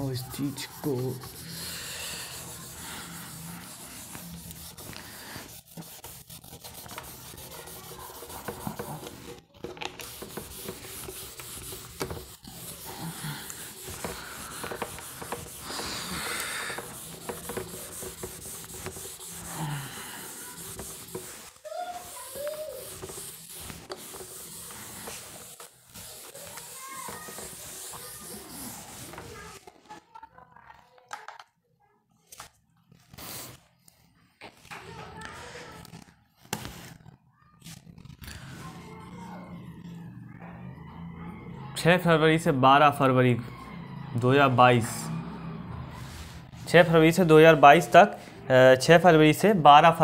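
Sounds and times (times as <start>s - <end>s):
eraser rubbing on whiteboard: 0.0s - 29.7s, 32.9s - 33.7s, 35.7s - 38.8s.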